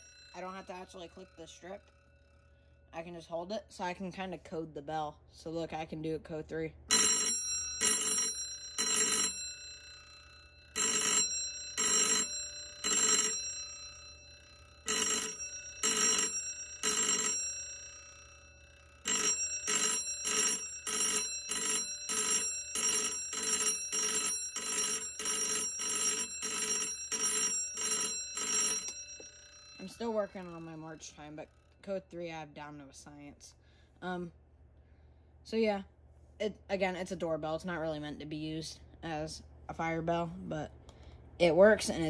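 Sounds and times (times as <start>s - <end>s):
electric doorbell ringing: 0.0s - 2.1s, 6.9s - 30.9s.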